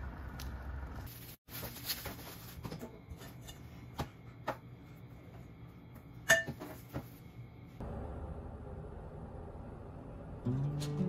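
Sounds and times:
light kitchen knocks and clinks: 0:06.2 - 0:07.2.

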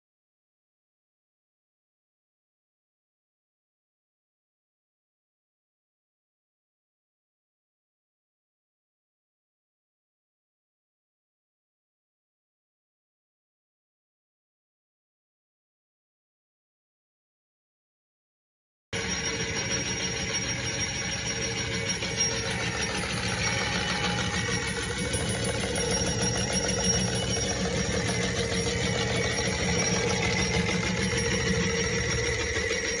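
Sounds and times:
printer motor whirring and clattering: 0:19.0 - 0:33.0.

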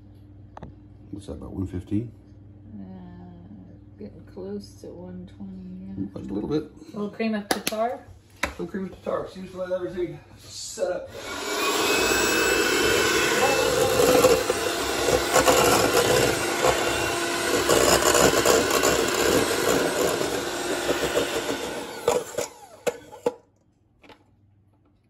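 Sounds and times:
electric hand mixer whipping: 0:11.1 - 0:23.4.

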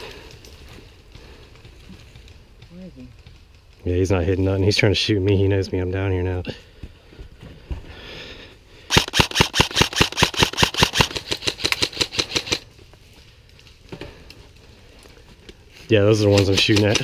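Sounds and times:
airsoft rifle rapid firing: 0:08.9 - 0:12.6.

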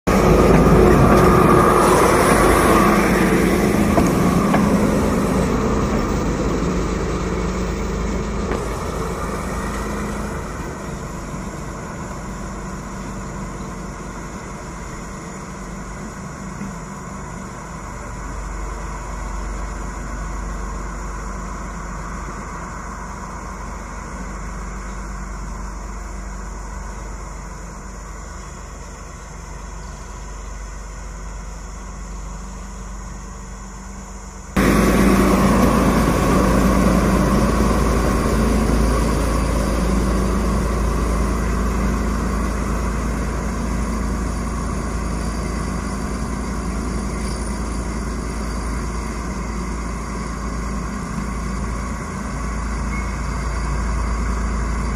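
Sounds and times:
diesel locomotive passing: 0:00.0 - 0:54.9.

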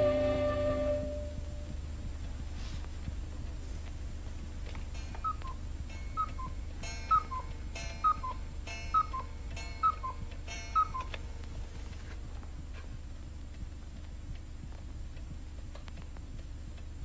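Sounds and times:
cuckoo clock calling: 0:04.9 - 0:11.4.

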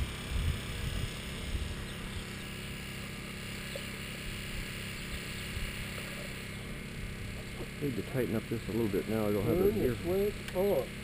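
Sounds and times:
wind rumbling on microphone: 0:00.0 - 0:02.3
faint engine drone: 0:00.0 - 0:11.0
outdoor background noise: 0:00.0 - 0:11.0.

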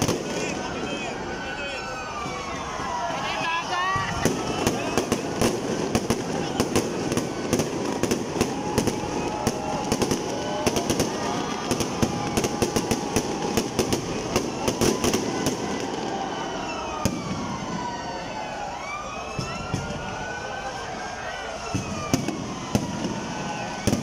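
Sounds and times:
continuous fireworks rumble: 0:00.0 - 0:01.4, 0:02.1 - 0:24.0
fireworks bangs and crackles: 0:00.0 - 0:24.0
fireworks whistles: 0:03.4 - 0:17.9, 0:21.6 - 0:24.0.

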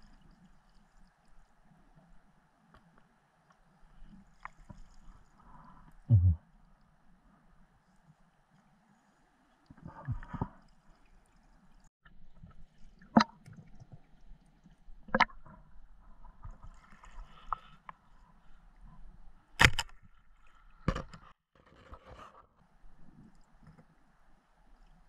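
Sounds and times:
sharp knocks underwater: 0:06.1 - 0:06.4, 0:13.0 - 0:13.6.

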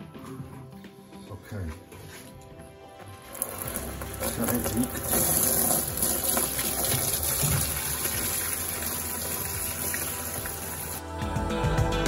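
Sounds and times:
tap water running into bucket: 0:03.3 - 0:11.0.

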